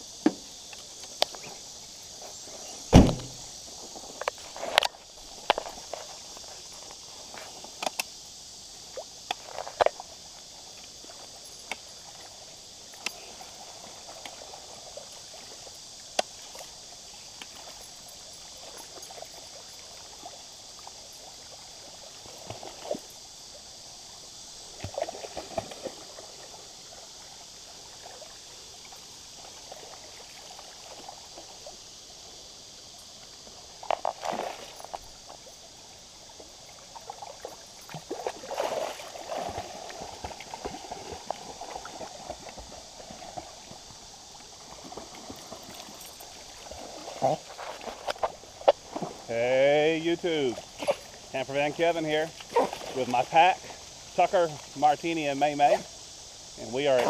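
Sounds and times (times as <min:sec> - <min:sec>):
river water flowing over rocks: 0:00.0 - 0:57.0
splashing from wading: 0:24.6 - 0:31.8, 0:33.5 - 0:54.2.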